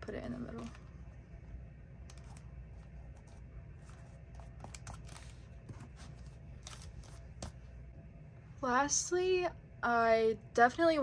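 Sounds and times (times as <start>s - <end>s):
low steady hum: 0.0s - 11.0s
paper rustling: 2.1s - 7.6s.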